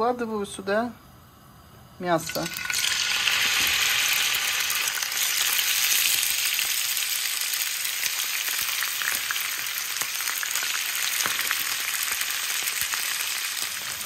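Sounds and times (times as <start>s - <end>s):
meat sizzling in oil: 2.2s - 14.0s
small pops and crackles: 7.5s - 14.0s.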